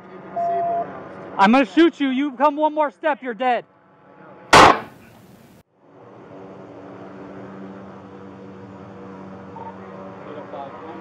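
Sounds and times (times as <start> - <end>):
handgun shot: 4.6 - 5.2.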